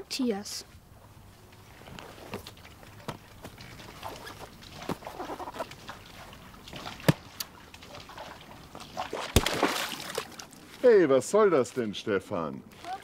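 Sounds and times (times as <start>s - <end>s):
ball splashing into water: 2.3s - 10.6s.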